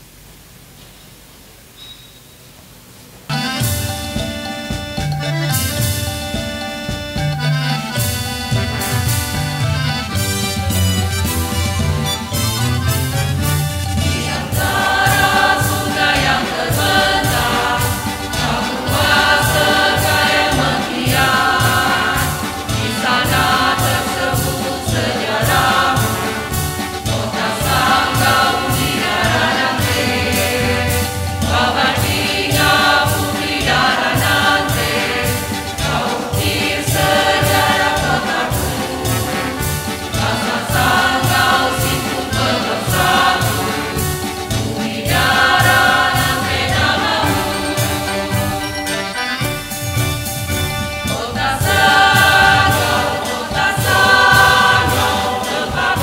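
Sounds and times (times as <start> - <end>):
instrumental backing with beat: 3.3 - 56.0
mixed choir singing: 13.8 - 49.2, 51.0 - 56.0.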